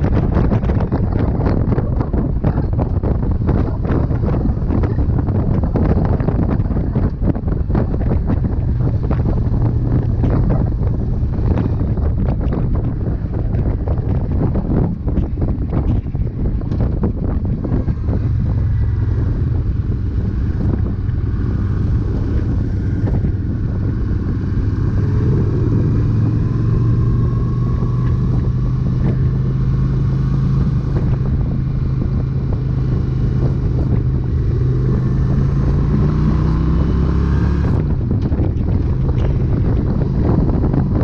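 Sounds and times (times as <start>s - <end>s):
engine running steadily: 0.0s - 41.0s
wind noise on microphone: 0.0s - 41.0s.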